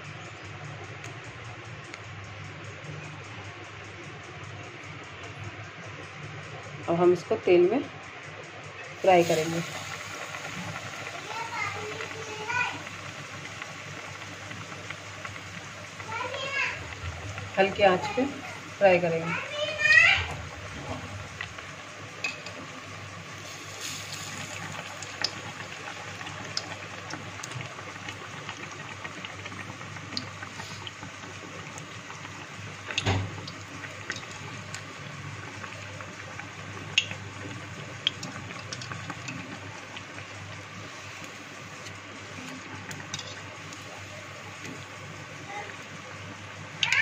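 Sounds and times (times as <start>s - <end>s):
food deep-frying in hot oil: 8.8s - 47.0s.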